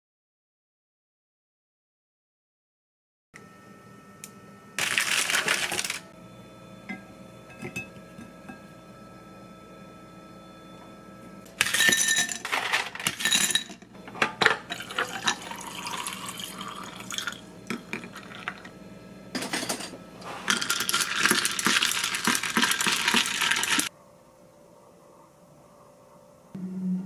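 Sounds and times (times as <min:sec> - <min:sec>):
ice cubes clinking in glass: 0:04.8 - 0:06.0, 0:11.6 - 0:13.8, 0:14.6 - 0:18.7, 0:20.5 - 0:23.9
liquid pouring: 0:14.7 - 0:17.4, 0:20.6 - 0:23.9.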